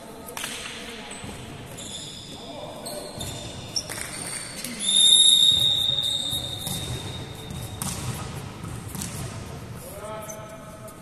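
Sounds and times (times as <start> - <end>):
gym background noise: 0.0 - 11.0
referee's whistle blast: 4.8 - 7.2.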